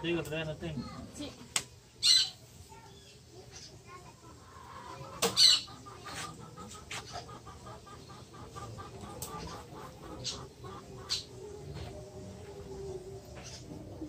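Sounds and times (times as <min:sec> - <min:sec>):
bird calling: 0:04.7 - 0:14.0.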